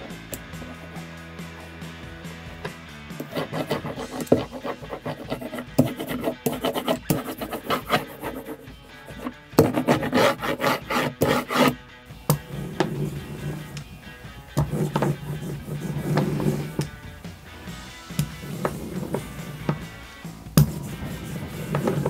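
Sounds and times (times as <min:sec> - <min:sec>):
background music: 0:00.0 - 0:22.0
ink roller rubbing on wood block: 0:03.2 - 0:11.8, 0:12.4 - 0:13.9, 0:14.6 - 0:16.9, 0:18.2 - 0:19.8, 0:20.6 - 0:22.0.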